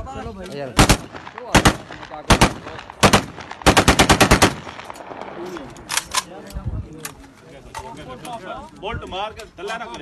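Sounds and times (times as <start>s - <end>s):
assault rifle gunfire bursts: 0.8s - 5.0s.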